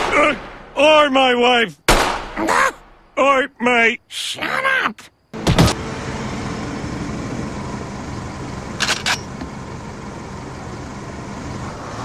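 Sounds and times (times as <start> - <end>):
car engine idling: 5.4 - 12.0.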